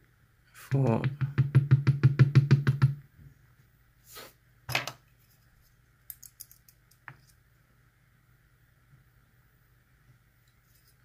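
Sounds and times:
small metal parts clicking: 0:06.1 - 0:07.0.

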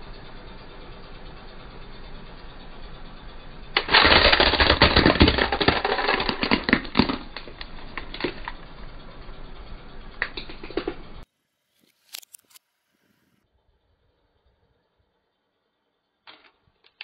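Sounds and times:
plastic toy crunching under tyre: 0:03.8 - 0:08.7.

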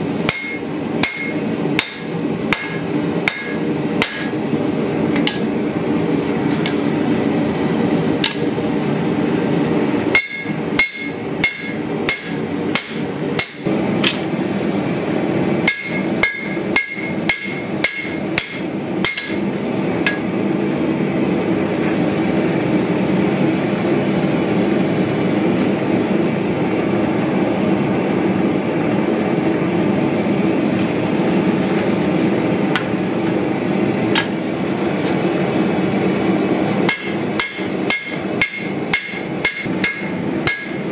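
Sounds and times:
steady background noise: 0:00.0 - 0:40.9
hammer striking metal on anvil: 0:00.2 - 0:04.4, 0:05.2 - 0:05.5, 0:08.2 - 0:08.5, 0:10.1 - 0:14.2, 0:15.6 - 0:20.3, 0:36.8 - 0:40.9
high anvil ping: 0:00.3 - 0:04.4, 0:10.1 - 0:13.7.

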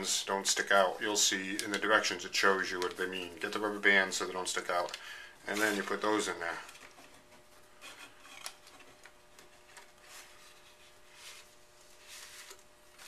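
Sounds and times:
plastic tube rubbing and scraping: 0:05.5 - 0:13.0.

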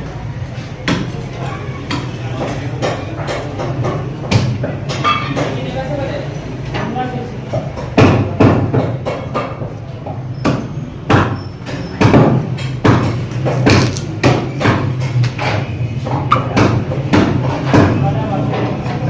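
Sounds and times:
cleaver chopping on wooden block: 0:10.4 - 0:15.7.

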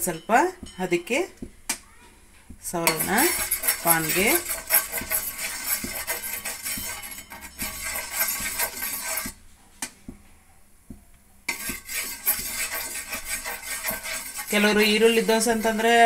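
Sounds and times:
metal ladle scraping iron pan: 0:02.8 - 0:09.4, 0:11.5 - 0:16.0.

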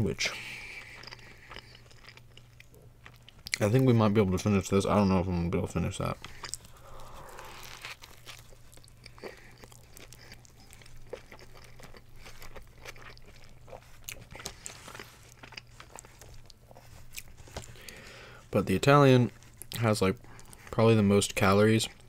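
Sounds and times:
steady low hum: 0:00.0 - 0:18.6
biting and chewing sandwich: 0:00.6 - 0:03.8, 0:06.2 - 0:18.1.

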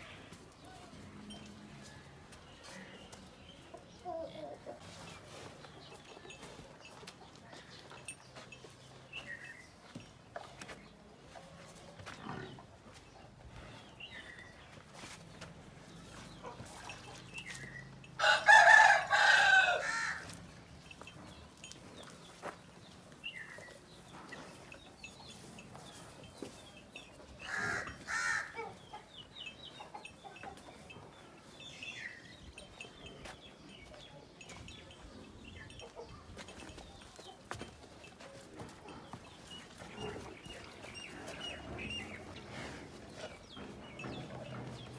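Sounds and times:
rooster crowing: 0:18.2 - 0:20.2.

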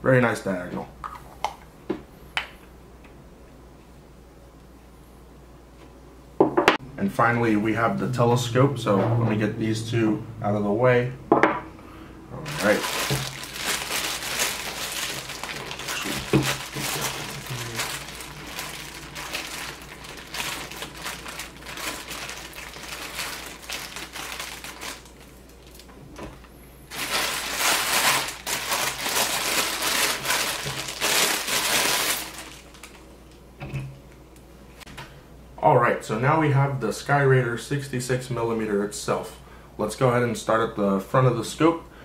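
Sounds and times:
plastic bag crinkling: 0:12.5 - 0:33.1.

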